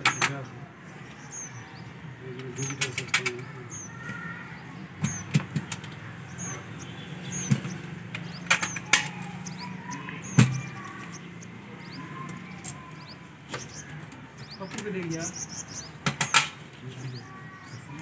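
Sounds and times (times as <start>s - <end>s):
small bird chirping: 0.0s - 18.0s
metal parts knocking and clanking: 16.0s - 16.6s.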